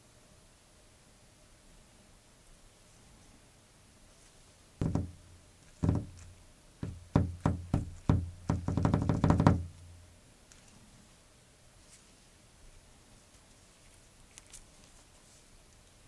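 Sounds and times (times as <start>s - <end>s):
knocking on hard surface: 4.8s - 9.8s.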